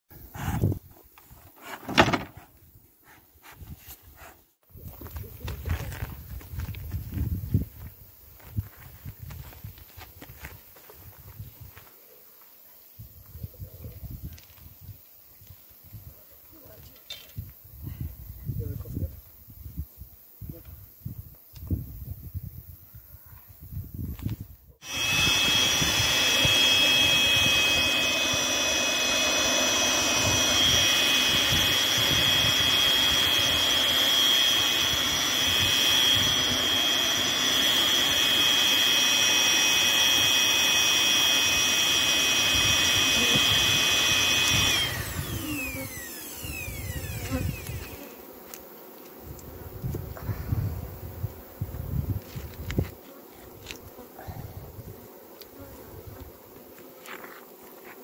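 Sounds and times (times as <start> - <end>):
small motor whining: 24.8 - 48.7
bees buzzing: 24.8 - 49.8.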